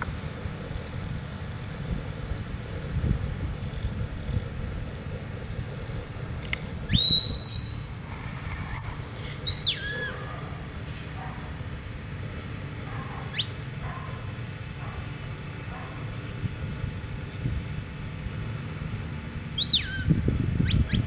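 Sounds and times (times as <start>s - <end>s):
short upward whistle chirp: 6.9s - 8.1s, 19.6s - 21.0s
falling whistle: 6.9s - 8.8s, 9.4s - 10.2s, 19.6s - 21.0s
rising whistle: 6.9s - 10.2s, 19.5s - 21.0s.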